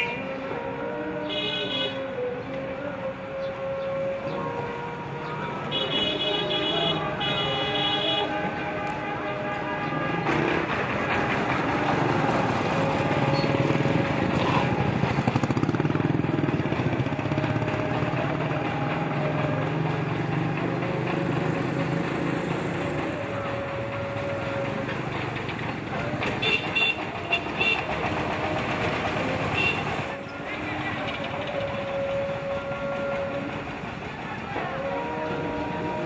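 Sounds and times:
bus horn toots: 1.2s - 2.2s, 5.2s - 11.4s, 26.2s - 28.6s, 29.4s - 30.4s
vehicle engine running: 5.6s - 36.0s.

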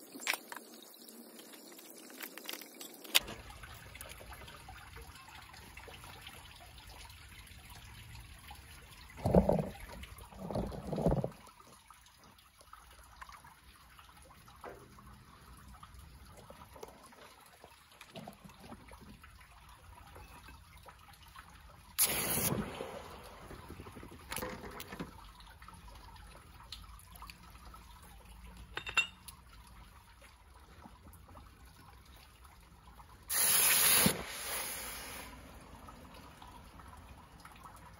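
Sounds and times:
hot metal fizzing in water: 22.0s - 25.0s, 33.3s - 35.6s.

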